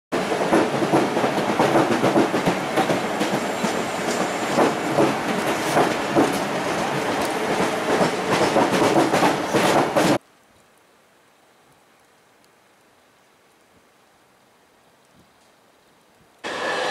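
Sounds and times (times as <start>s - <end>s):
train rumble: 0.2s - 10.2s
train wheels clacking: 0.2s - 10.2s.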